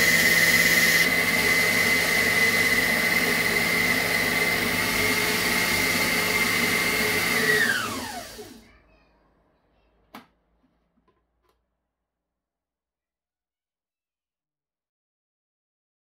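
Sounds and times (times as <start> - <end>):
food processor whine: 0.0 - 8.7.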